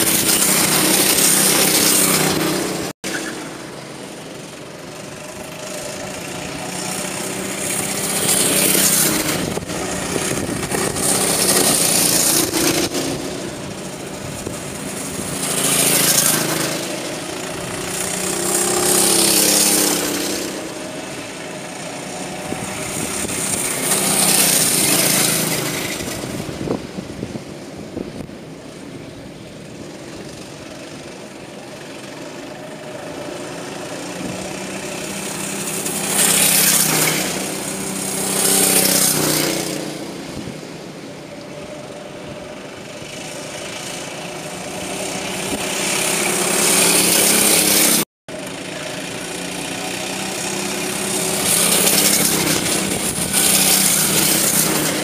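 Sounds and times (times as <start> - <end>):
go-kart engines racing past: 0.0 - 55.0.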